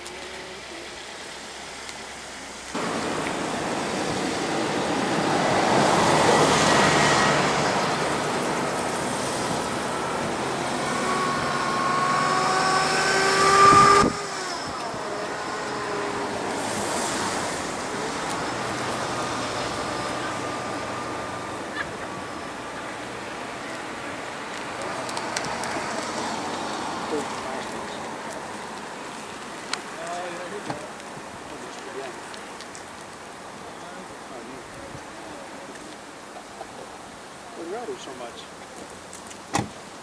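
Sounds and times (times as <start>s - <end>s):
loud steady rushing noise: 2.7s - 32.2s
elk bugling: 2.8s - 24.0s.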